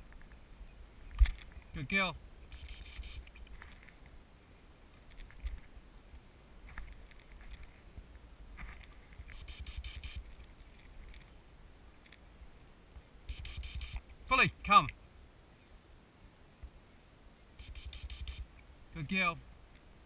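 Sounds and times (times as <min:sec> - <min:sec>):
dog whistle high pips: 0:13.3 - 0:14.0, 0:17.6 - 0:18.4.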